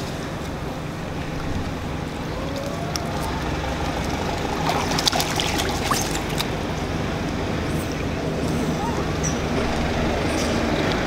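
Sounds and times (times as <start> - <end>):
low background rumble: 0.0 - 11.0
monkeys splashing in muddy water: 2.2 - 6.8.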